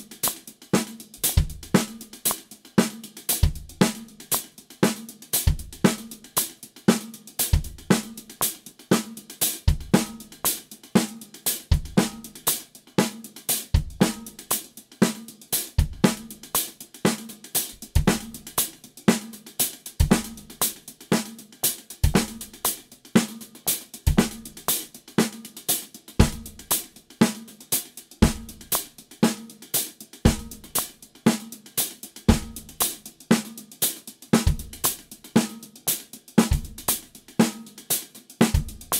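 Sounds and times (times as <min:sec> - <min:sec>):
hi-hat: 0:00.0 - 0:38.9
snare drum backbeats: 0:00.0 - 0:38.9
bass drum: 0:01.2 - 0:02.1, 0:03.4 - 0:04.0, 0:07.6 - 0:08.2, 0:09.7 - 0:10.4, 0:11.7 - 0:12.3, 0:13.8 - 0:14.4, 0:15.8 - 0:16.5, 0:17.7 - 0:18.6, 0:20.0 - 0:20.6, 0:22.0 - 0:22.6, 0:24.1 - 0:24.7, 0:26.2 - 0:26.8, 0:28.2 - 0:28.9, 0:30.3 - 0:30.8, 0:32.3 - 0:33.0, 0:34.4 - 0:35.1, 0:36.4 - 0:37.2, 0:38.5 - 0:38.9.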